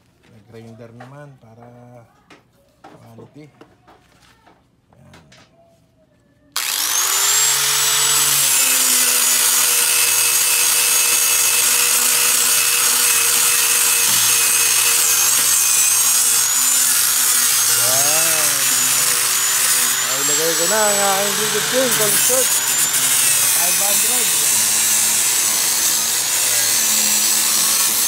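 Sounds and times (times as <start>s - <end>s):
angle grinder spinning up: 6.6s - 28.0s
grinder sanding wood: 6.6s - 28.0s.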